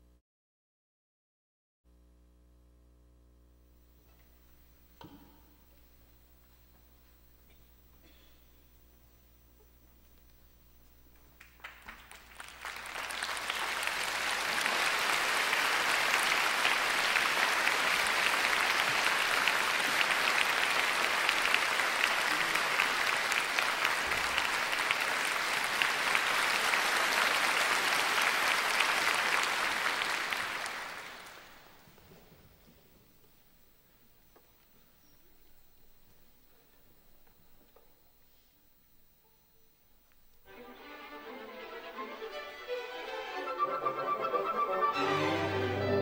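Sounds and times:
audience applauding: 0:11.1 - 0:32.1.

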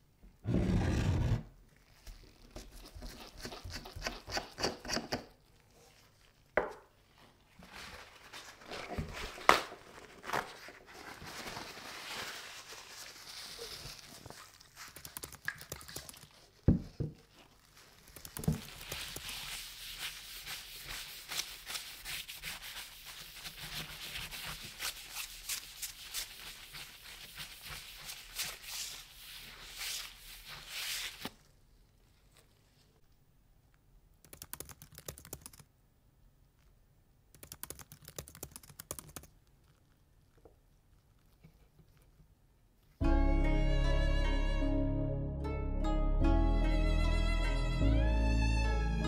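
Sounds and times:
cloth rubbing on metal: 0:18.6 - 0:31.3.

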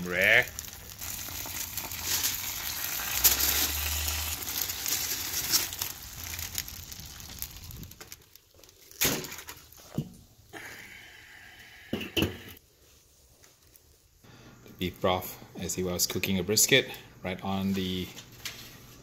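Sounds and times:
aluminium foil crinkling: 0:00.0 - 0:09.9.

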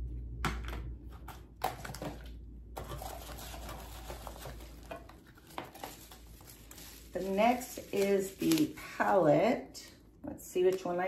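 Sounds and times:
packaging rustling and crinkling: 0:01.2 - 0:09.5.

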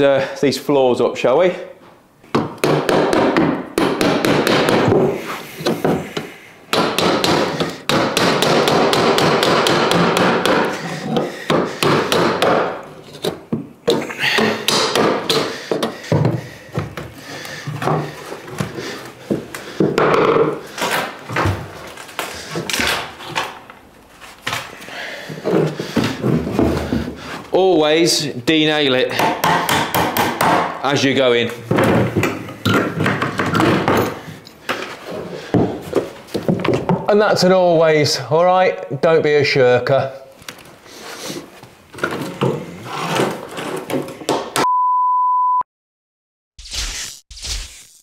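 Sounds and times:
hammer striking floorboards: 0:02.3 - 0:21.8, 0:25.3 - 0:27.3, 0:29.2 - 0:30.8, 0:31.6 - 0:37.1, 0:42.0 - 0:44.7.

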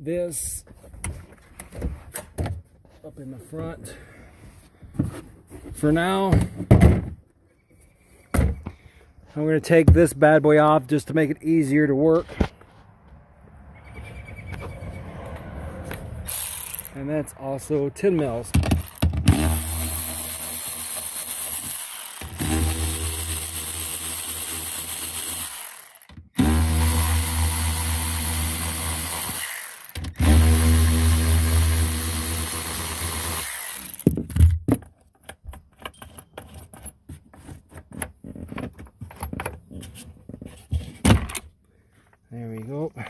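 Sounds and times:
cordless ratchet whirring: 0:16.2 - 0:17.0, 0:18.7 - 0:34.2
metal parts clicking and clinking: 0:34.8 - 0:37.0.

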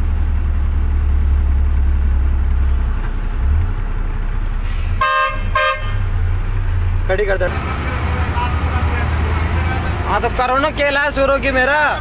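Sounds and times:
truck engine rumble: 0:00.0 - 0:12.0
vehicle horn blast: 0:05.0 - 0:06.1.

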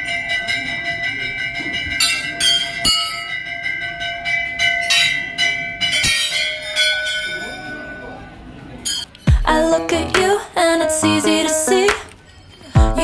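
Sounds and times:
metal bells ringing: 0:00.0 - 0:09.1.

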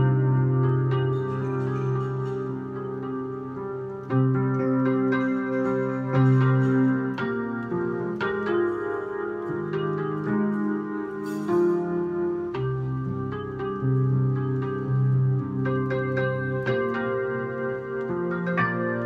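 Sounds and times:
digital piano chords: 0:00.0 - 0:19.0.

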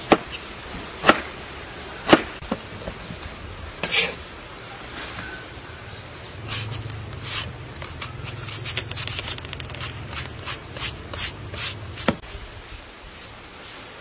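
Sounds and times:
peeler scraping fruit skin: 0:06.4 - 0:12.2.

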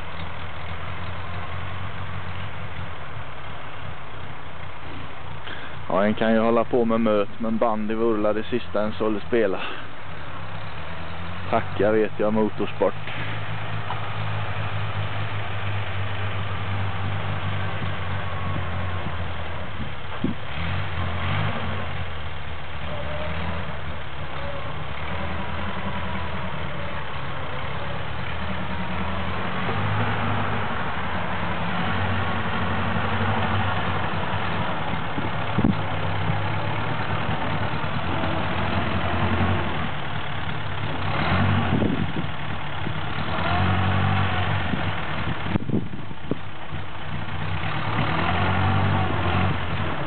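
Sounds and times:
car engine running: 0:00.0 - 0:50.0.

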